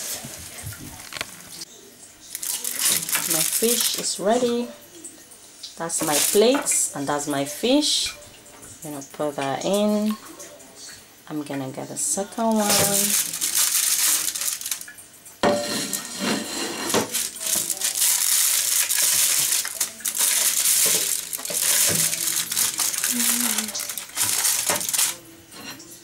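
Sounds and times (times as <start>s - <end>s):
aluminium foil crinkling: 2.2s - 4.6s, 5.9s - 6.9s, 12.3s - 15.0s, 15.8s - 25.3s
spatula scraping on foil tray: 12.6s - 14.8s, 15.5s - 25.7s.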